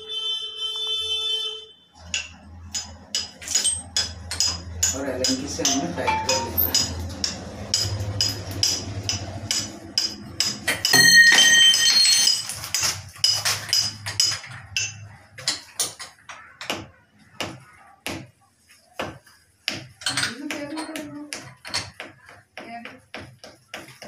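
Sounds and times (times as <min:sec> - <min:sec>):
ringing metallic clink: 0:10.8 - 0:12.7.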